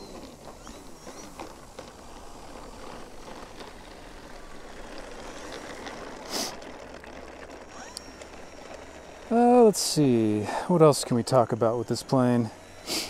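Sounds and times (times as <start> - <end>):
electric motor and propeller whir: 0.0 - 13.0
short sharp hiss: 6.3 - 6.6.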